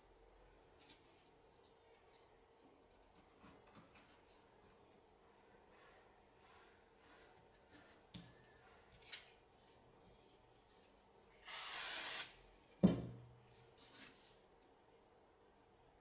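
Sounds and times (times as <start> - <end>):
aerosol can spray hiss: 11.4 - 12.4
wood set down on table: 12.8 - 13.3.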